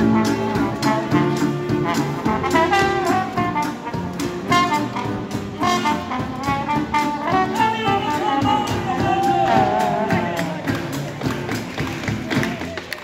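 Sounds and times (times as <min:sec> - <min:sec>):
saxophones and trumpet: 0:00.0 - 0:11.4
steady beat: 0:00.0 - 0:12.7
sousaphone bass line: 0:07.4 - 0:10.7.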